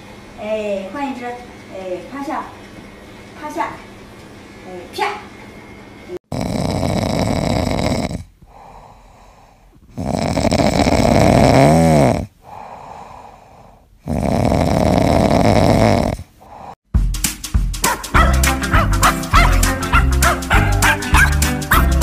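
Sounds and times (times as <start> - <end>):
cat snoring: 6.3 - 16.8
cat breathing softly: 8.4 - 9.9, 12.4 - 14.0, 16.3 - 16.8.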